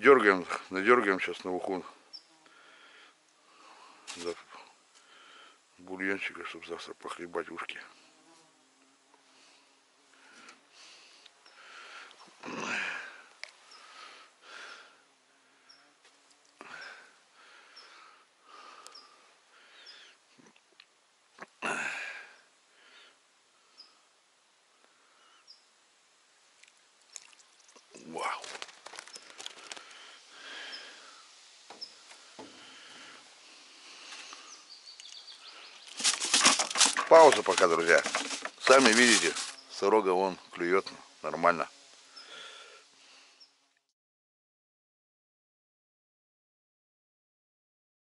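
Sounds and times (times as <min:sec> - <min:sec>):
faint outdoor ambience: 0:00.0 - 0:43.9
person breathing and sniffing: 0:29.2 - 0:34.7, 0:42.1 - 0:43.5.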